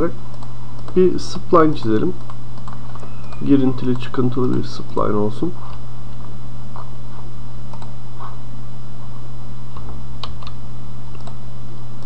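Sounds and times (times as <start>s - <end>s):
steady low hum: 0.0s - 12.0s
mouse and keyboard clicks: 1.8s - 4.7s.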